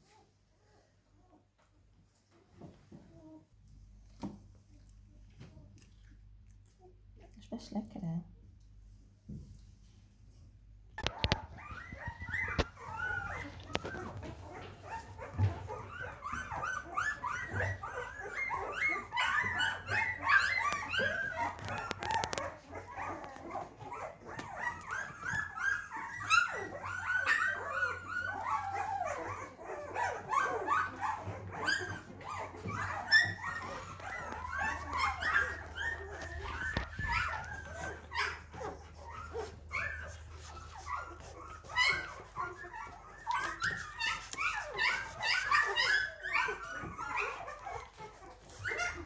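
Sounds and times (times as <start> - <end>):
puppies squeaking and whimpering: 11.0 - 49.0.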